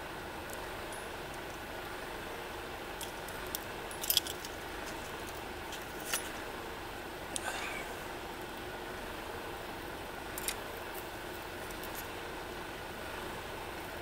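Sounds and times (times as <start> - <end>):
faint steady hiss: 0.0 - 14.0
keys jangling: 3.9 - 6.3.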